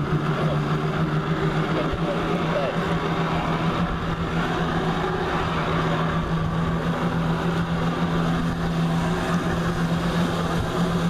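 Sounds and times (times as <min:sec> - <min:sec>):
jet ski engine running: 0:00.0 - 0:11.0.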